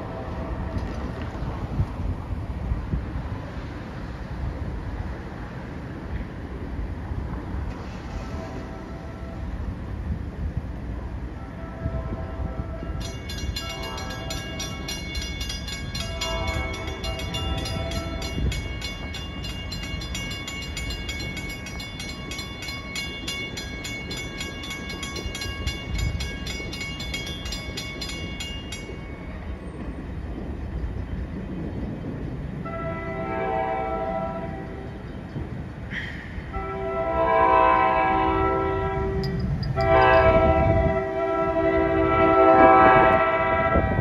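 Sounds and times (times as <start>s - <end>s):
train horn: 0.0s - 1.2s, 7.8s - 9.7s, 11.3s - 14.9s, 15.9s - 18.6s, 32.6s - 35.0s, 36.3s - 44.0s
train engine rumble: 0.0s - 44.0s
crossing warning bell ringing: 11.4s - 31.0s, 36.3s - 44.0s.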